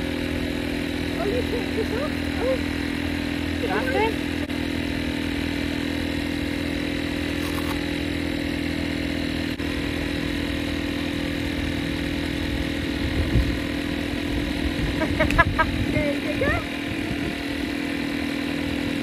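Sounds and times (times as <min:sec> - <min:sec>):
engine drone: 0:00.0 - 0:19.0.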